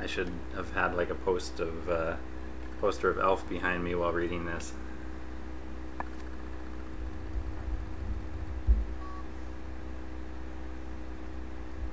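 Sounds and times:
low electrical room hum: 0:00.0 - 0:11.9
soft thump: 0:07.6 - 0:09.0
faint high beep: 0:09.0 - 0:09.4.

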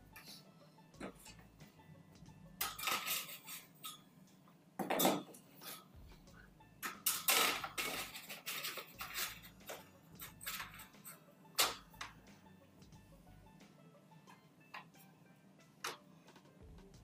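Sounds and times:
metal strips scraping and clattering: 0:02.6 - 0:04.1, 0:05.0 - 0:06.0, 0:06.8 - 0:11.8.

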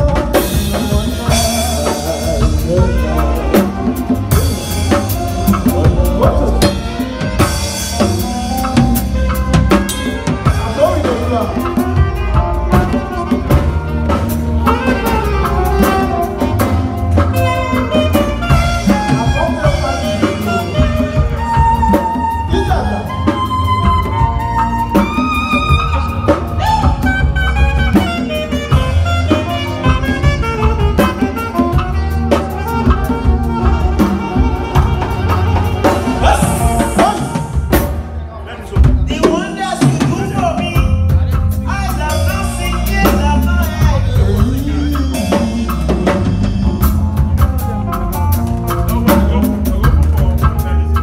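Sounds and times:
bass line: 0:00.0 - 0:51.0
congas: 0:00.0 - 0:51.0
drum kit: 0:00.0 - 0:51.0
live band playing: 0:00.0 - 0:51.0
saxophone melody: 0:00.0 - 0:51.0.

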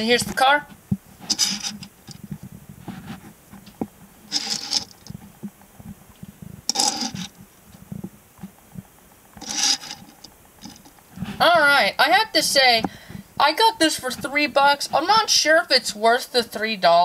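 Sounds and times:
toy car scraping on wood: 0:01.3 - 0:01.9, 0:04.3 - 0:05.1, 0:06.7 - 0:07.4, 0:09.4 - 0:10.8.

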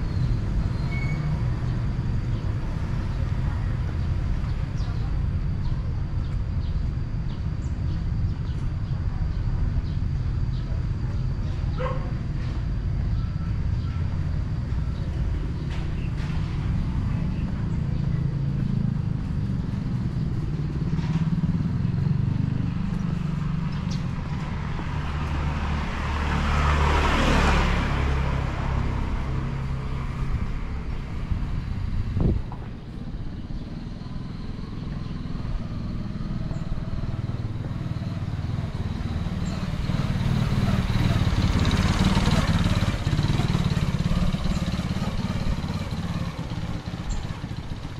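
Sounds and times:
motorbike engine passing: 0:14.0 - 0:47.9
vehicle passing: 0:15.2 - 0:47.9
steady low rumble: 0:28.4 - 0:38.9.

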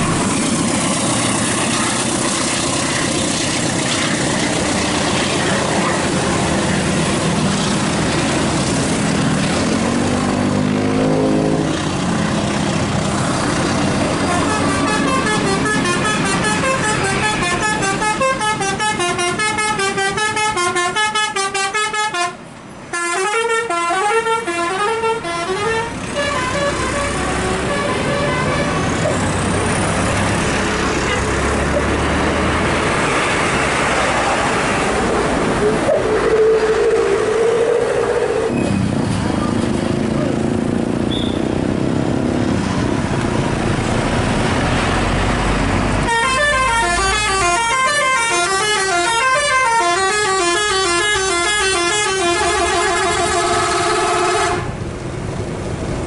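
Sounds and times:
heavy vehicle engine rumble: 0:00.0 - 0:56.0
road noise: 0:00.0 - 0:56.0
musical bus horns playing a tune: 0:14.1 - 0:29.2, 0:46.0 - 0:54.8.

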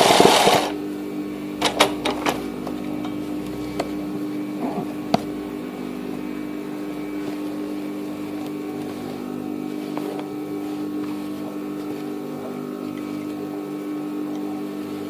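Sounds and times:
sewing machine motor humming: 0:00.0 - 0:00.8.

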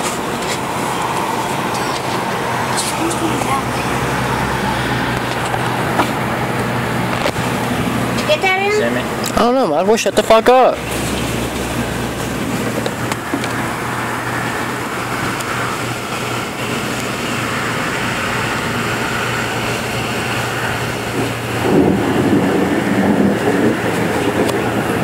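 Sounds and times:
storm wind rushing: 0:10.8 - 0:25.0
distant thunder rumbling: 0:17.4 - 0:25.0.

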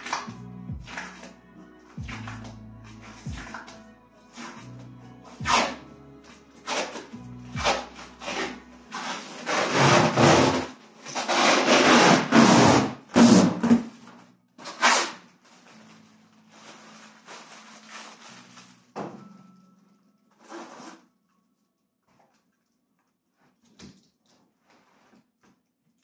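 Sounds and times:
plastic packaging rustling: 0:14.0 - 0:19.8.

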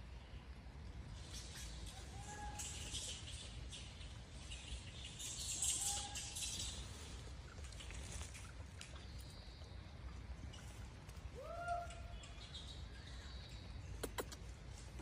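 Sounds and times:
sharp clicks: 0:14.0 - 0:14.5.

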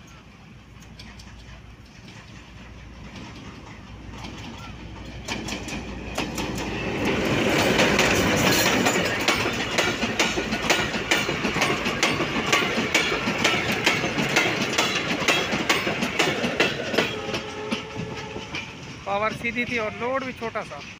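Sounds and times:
diesel locomotive engine drone: 0:00.0 - 0:20.9
train wheels clicking over rail joints: 0:00.0 - 0:20.9.

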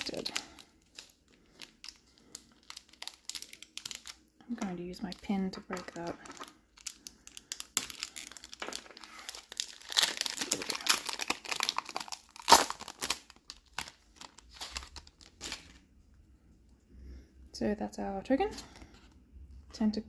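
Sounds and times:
foil wrapper crinkling and tearing: 0:00.0 - 0:15.9.

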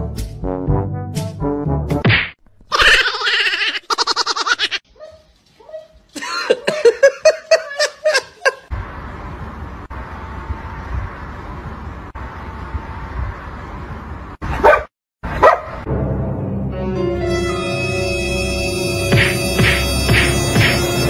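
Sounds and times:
person laughing hard: 0:02.7 - 0:04.8, 0:06.2 - 0:08.7.

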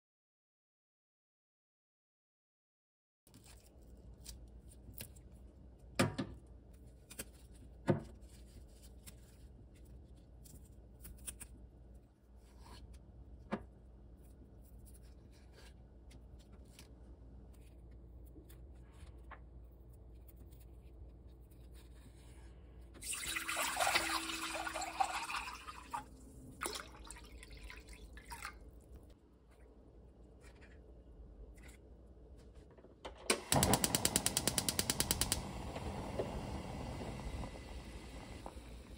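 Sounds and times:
water running into sink: 0:23.0 - 0:28.6.

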